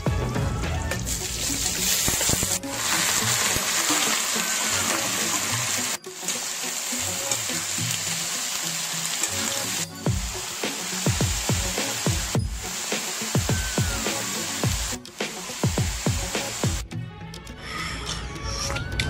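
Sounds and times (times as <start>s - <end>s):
background music: 0.0s - 19.0s
vegetables sizzling in hot oil: 1.0s - 16.8s.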